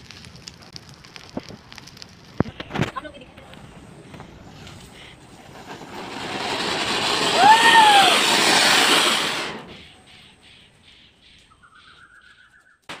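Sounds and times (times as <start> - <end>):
ground firework hissing: 0.0 - 10.5
rising and falling call: 6.3 - 12.8.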